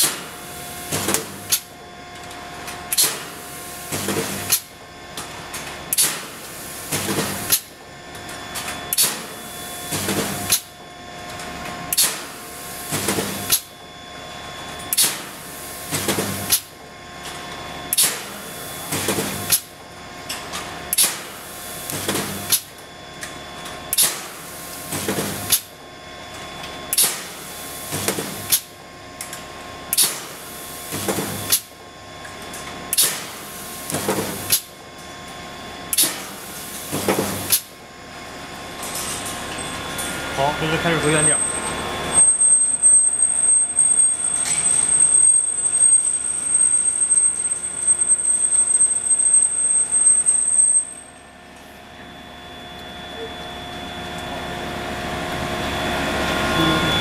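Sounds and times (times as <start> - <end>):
welding machine clanking and clattering: 0.0 - 13.8, 14.8 - 34.8, 35.9 - 37.8, 38.7 - 40.2
electrical whine: 0.0 - 57.0.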